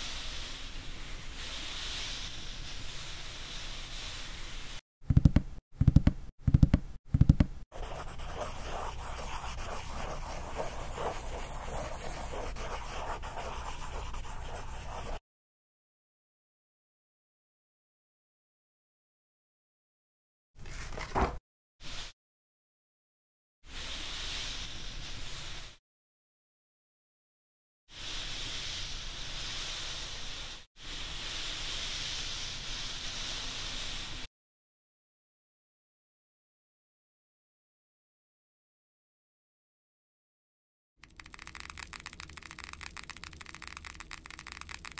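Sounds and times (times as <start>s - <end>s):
pencil scribbling on paper: 7.7s - 15.2s.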